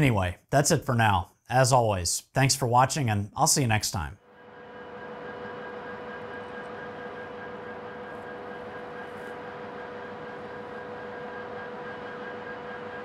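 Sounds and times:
drone propellers humming: 4.3s - 13.0s.

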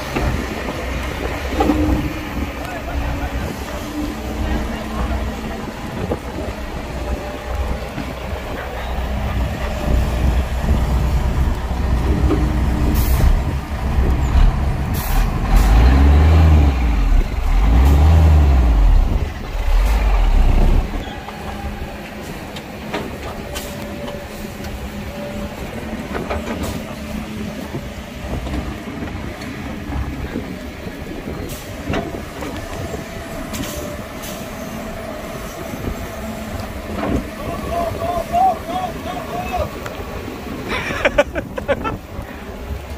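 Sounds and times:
heavy diesel machinery rumbling: 0.0s - 42.9s
short sharp hissing and clanking: 14.9s - 15.7s.

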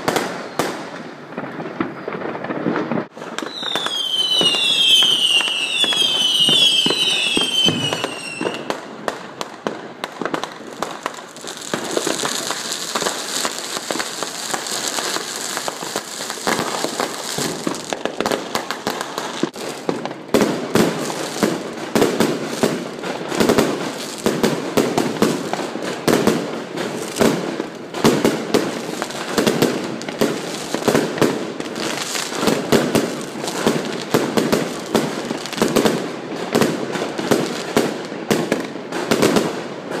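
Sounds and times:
falling firework whistles: 0.0s - 8.8s, 10.8s - 20.0s
fireworks crackling and banging: 0.0s - 40.0s.

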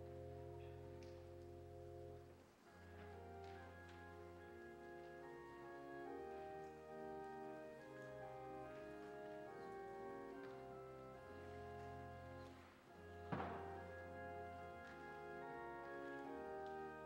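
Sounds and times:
faint organ chords: 0.0s - 17.0s
sharp knock: 13.3s - 13.9s.

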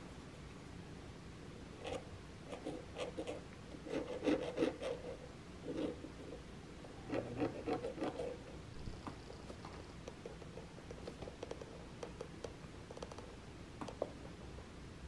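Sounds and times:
awl scratching on metal edge: 1.8s - 6.4s, 7.0s - 8.6s.

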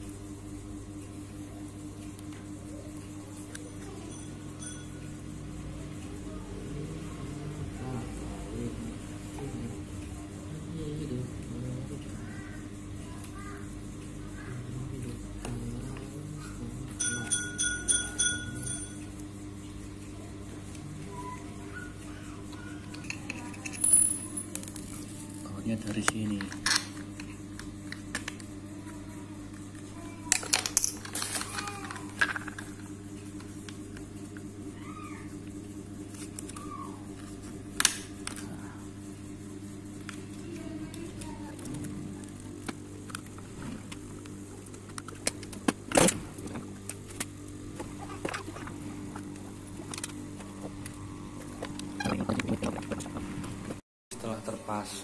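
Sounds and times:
steady low hum: 0.0s - 55.0s
clicks and knocks of parts: 29.8s - 32.8s.

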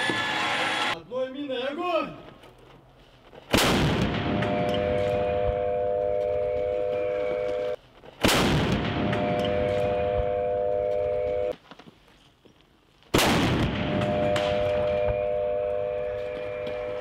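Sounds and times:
mortar blast: 3.5s - 5.6s, 8.2s - 10.2s, 13.1s - 15.3s.

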